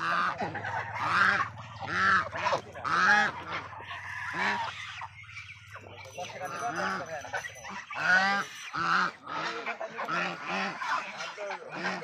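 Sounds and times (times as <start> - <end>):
geese honking: 0.0 - 12.0.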